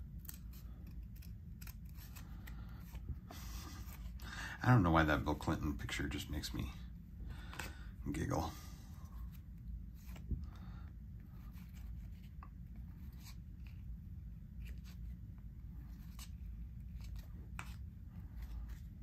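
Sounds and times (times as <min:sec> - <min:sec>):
trading cards scraping and flicking: 0:00.0 - 0:04.3, 0:09.1 - 0:10.6, 0:11.2 - 0:19.0
low room hum: 0:00.0 - 0:19.0.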